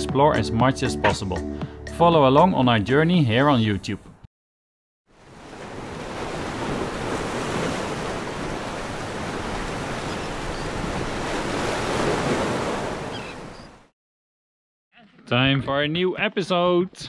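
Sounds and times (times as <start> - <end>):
ocean waves washing onto beach: 5.1 - 13.6.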